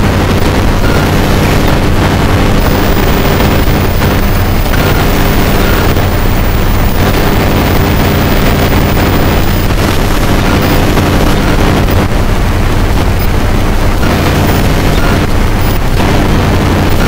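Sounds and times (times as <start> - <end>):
distorted rumble and hiss: 0.0 - 17.0
low hum: 0.0 - 17.0.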